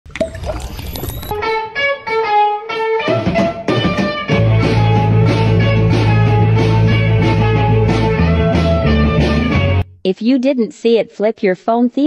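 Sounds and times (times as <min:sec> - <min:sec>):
band with steady bass line: 0:03.1 - 0:09.8.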